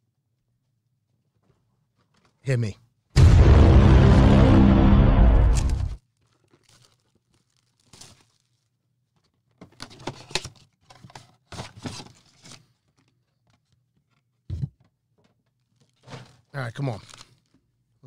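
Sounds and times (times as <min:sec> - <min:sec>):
shrink-wrap tearing and crackling: 0:05.6 - 0:08.7, 0:17.0 - 0:17.6.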